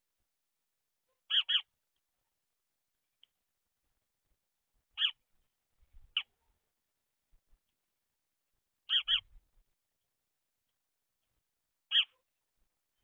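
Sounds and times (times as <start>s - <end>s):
sparrow chirping: 1.1s - 2.1s, 4.9s - 5.4s, 6.0s - 6.4s, 8.8s - 9.5s, 11.1s - 13.0s.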